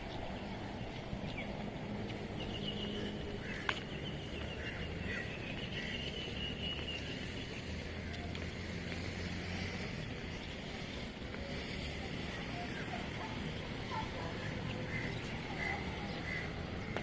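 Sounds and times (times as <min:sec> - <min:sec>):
birds chirping: 0:00.0 - 0:17.0
distant traffic rumble: 0:00.0 - 0:17.0.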